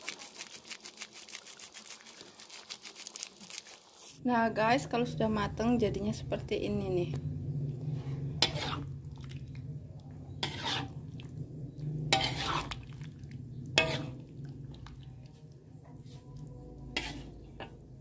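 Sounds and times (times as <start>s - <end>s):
steady low hum: 4.3s - 18.0s
metal spatula scraping a wok: 7.9s - 9.1s, 10.2s - 15.0s, 15.8s - 18.0s.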